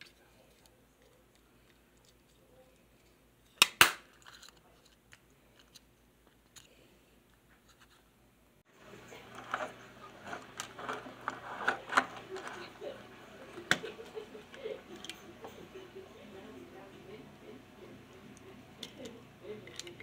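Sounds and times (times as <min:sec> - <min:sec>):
plastic toy clicking and rubbing: 0:04.1 - 0:08.0, 0:09.2 - 0:15.6, 0:18.3 - 0:20.0.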